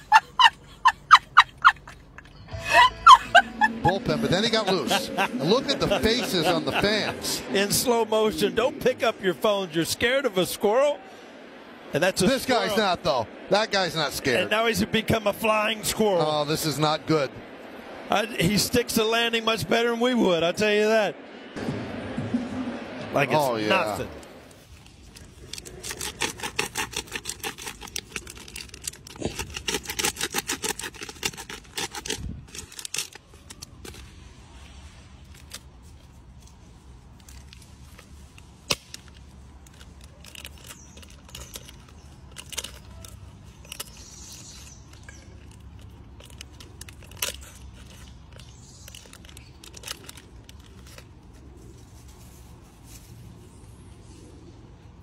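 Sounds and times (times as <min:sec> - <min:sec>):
plastic wrapper crinkling and tearing: 0:24.6 - 0:34.1, 0:38.7 - 0:51.4.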